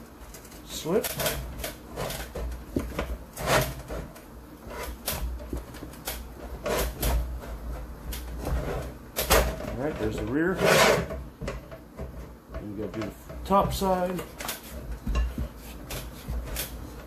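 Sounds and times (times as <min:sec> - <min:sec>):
tire rubbing against wheel rim: 0:09.7 - 0:12.4.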